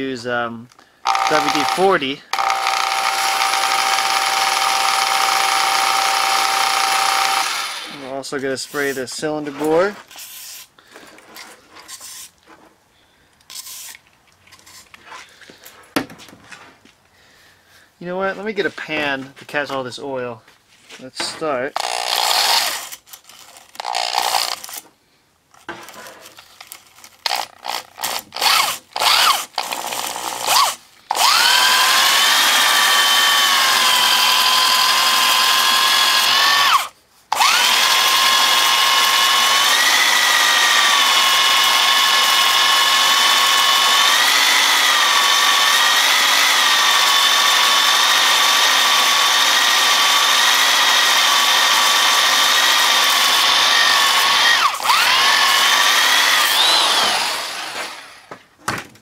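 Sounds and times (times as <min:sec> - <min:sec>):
handheld drill whining: 0:00.7 - 0:08.2, 0:21.8 - 0:24.9, 0:25.5 - 0:58.4.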